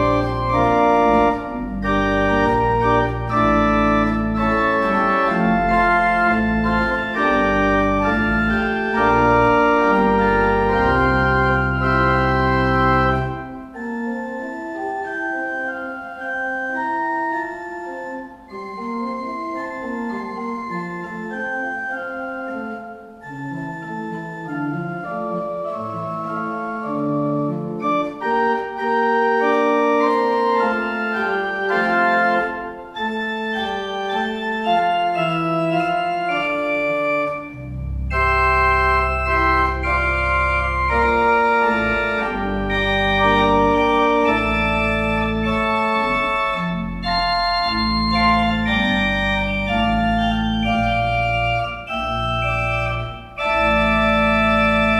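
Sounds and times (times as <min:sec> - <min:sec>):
organ playing slow chords: 0:00.0 - 0:54.9.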